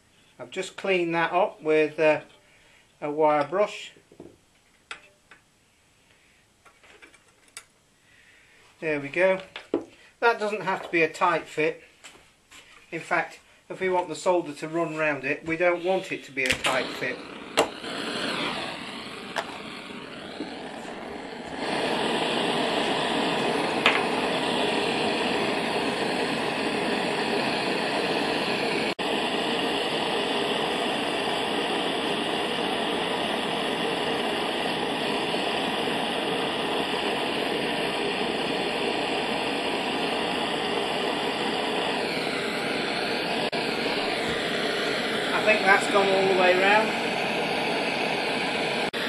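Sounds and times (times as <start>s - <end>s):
blowtorch flame hissing: 13.7s - 49.0s.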